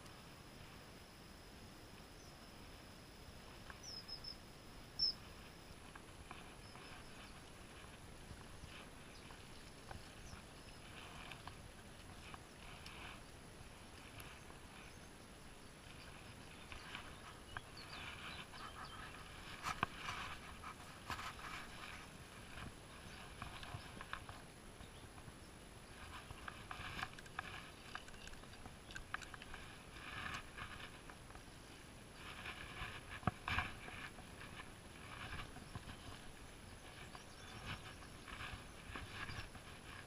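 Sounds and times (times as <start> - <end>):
rustling through grass and brush: 2.0 - 40.0
fishing rod handling noises: 26.0 - 31.4.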